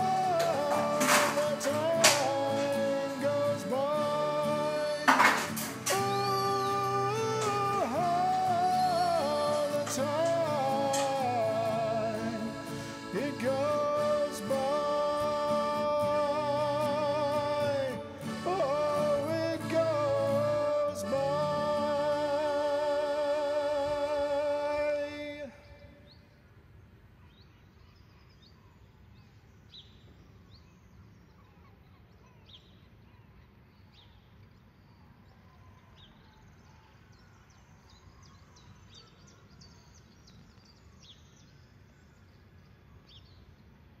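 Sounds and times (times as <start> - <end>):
song's held final chord: 0.0 - 22.5
birds chirping: 0.0 - 44.0.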